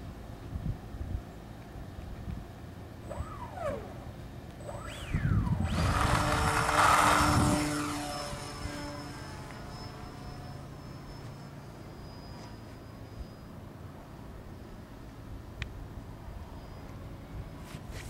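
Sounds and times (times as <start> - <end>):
model plane electric motor whine: 3.0 - 13.9
faint steady high tone: 3.0 - 17.7.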